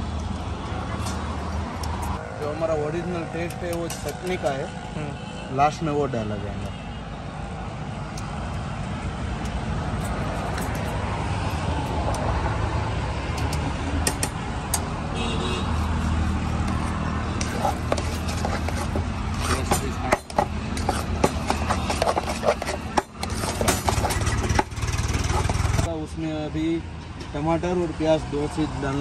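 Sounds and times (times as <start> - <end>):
metal spoon scraping a steel bowl: 15.6 - 25.9
engine low rumble: 23.1 - 27.4.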